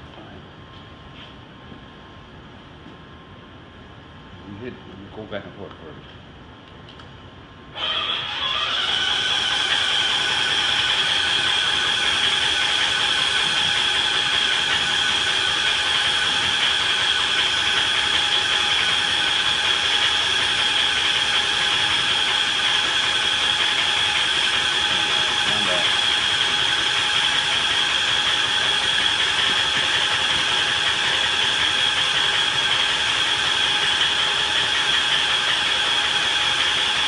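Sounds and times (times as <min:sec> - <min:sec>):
high-pitched whine: 0:07.7 - 0:34.6.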